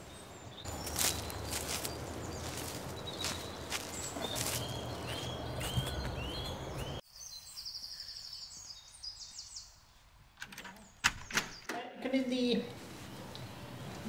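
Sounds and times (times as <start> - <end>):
footsteps on grass: 0.6 - 7.0.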